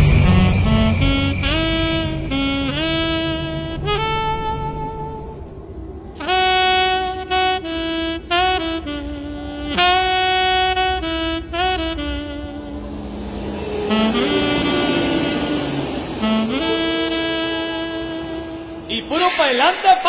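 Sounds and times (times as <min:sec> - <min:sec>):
bass accompaniment: 0:00.0 - 0:12.8
saxophone melody: 0:00.0 - 0:19.4.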